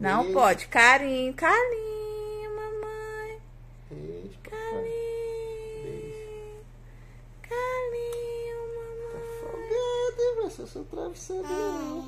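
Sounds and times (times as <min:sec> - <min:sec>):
soft vocal sounds: 0:03.8 - 0:12.0.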